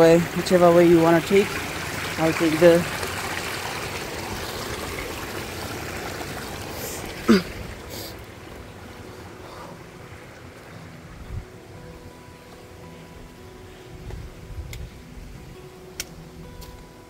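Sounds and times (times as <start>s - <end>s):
creek trickling over stones: 0.0s - 11.4s.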